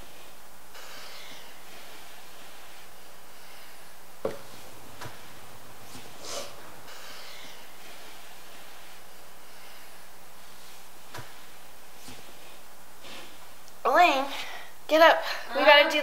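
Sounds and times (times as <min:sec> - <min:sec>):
room tone hiss: 0:00.0 - 0:16.0
sleeping person snorting: 0:05.8 - 0:10.9.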